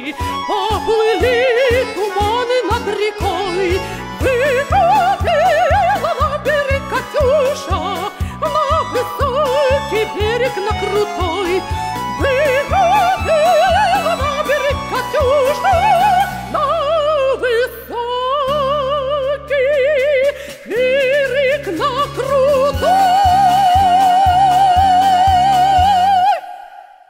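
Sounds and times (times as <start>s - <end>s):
instrumental accompaniment: 0.0s - 17.6s
soprano singing operatically: 0.0s - 27.0s.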